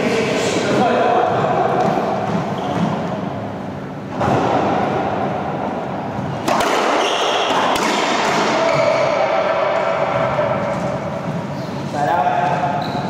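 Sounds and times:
racquetball smack: 6.2s - 8.8s.

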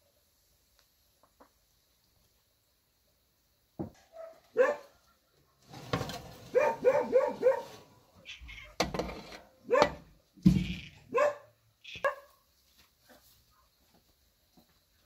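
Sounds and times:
animal calling: 6.6s - 8.8s, 10.6s - 12.3s.

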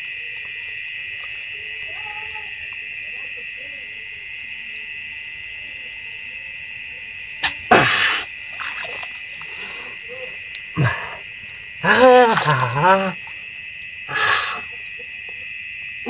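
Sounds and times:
frogs and insects chorus: 0.0s - 16.0s
spear splashing into water: 7.4s - 9.5s
person calling out: 11.8s - 13.2s.

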